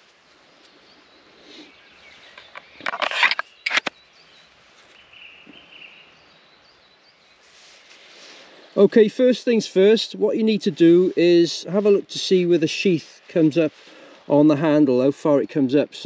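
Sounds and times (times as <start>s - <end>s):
knife scraping into sheath: 2.4s - 3.9s.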